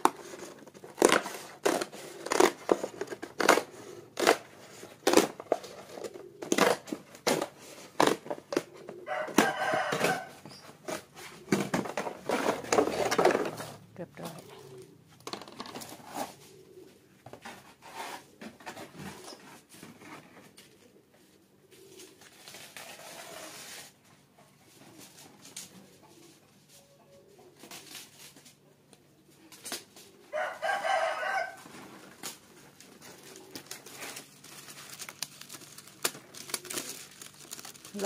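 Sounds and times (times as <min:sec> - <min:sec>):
rooster crowing: 0:09.0 - 0:10.4, 0:30.3 - 0:31.7
faint clicks and rustles: 0:31.6 - 0:38.0.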